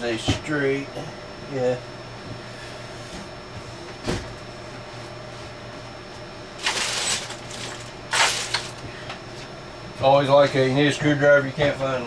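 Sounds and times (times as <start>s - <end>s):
steady low hum: 0.0s - 12.0s
rummaging through tools: 6.6s - 8.9s.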